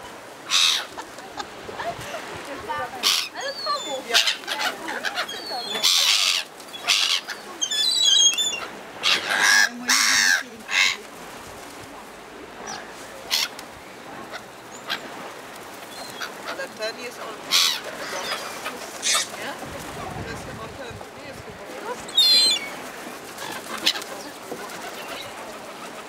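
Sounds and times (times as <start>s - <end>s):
small birds chirping: 3.0s - 9.5s, 14.3s - 19.5s, 22.0s - 26.0s.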